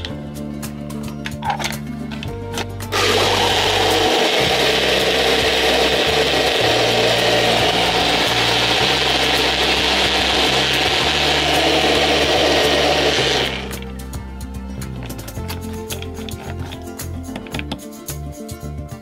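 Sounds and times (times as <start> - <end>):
background music: 0.0 - 19.0
blender motor running: 2.9 - 13.8.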